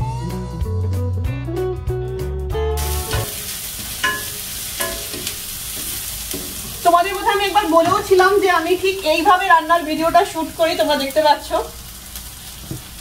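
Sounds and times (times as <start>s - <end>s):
guitar music: 0.0s - 5.4s
onions sizzling in a pan: 2.8s - 13.0s
wooden spatula knocking pan: 3.1s - 8.4s.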